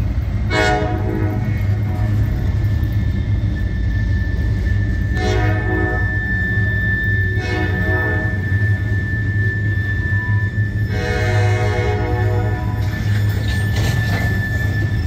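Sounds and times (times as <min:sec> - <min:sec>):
freight cars rumbling and clattering: 0:00.0 - 0:15.0
distant locomotive horn blasts: 0:00.5 - 0:02.5, 0:05.1 - 0:06.3, 0:07.2 - 0:09.0, 0:10.2 - 0:13.0
high wheel squeal: 0:00.8 - 0:15.0.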